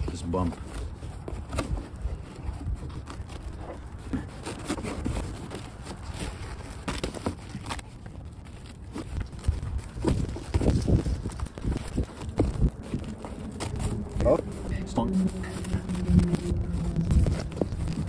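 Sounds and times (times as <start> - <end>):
fabric rustling and scraping: 0.0 - 18.0
low steady rumble: 8.2 - 18.0.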